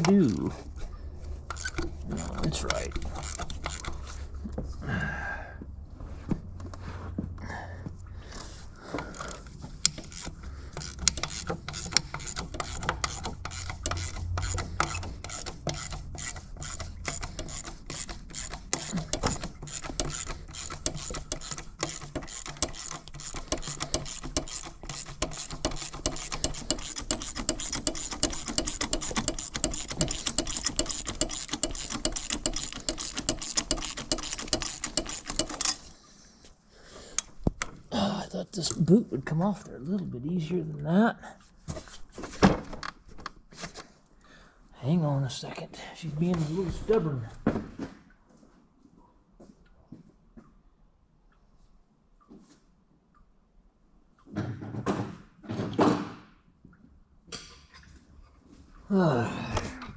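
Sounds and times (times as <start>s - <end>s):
ratchet wrench clicking: 1.5s - 4.1s, 9.1s - 35.9s.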